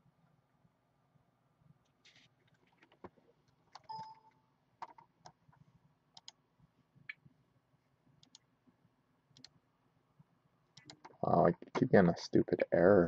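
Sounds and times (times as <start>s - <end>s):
brief tone: 3.9s - 4.4s
laptop keys and touchpad clicking: 6.2s - 6.4s, 10.8s - 11.2s.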